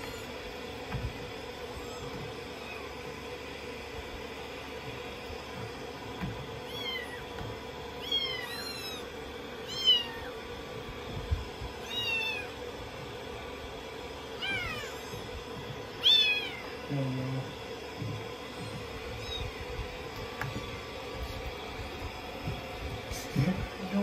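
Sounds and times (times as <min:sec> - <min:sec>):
kitten mewing: 0:06.6 - 0:07.3, 0:08.0 - 0:10.4, 0:11.8 - 0:12.6, 0:14.4 - 0:15.3, 0:16.0 - 0:16.7, 0:19.2 - 0:19.6.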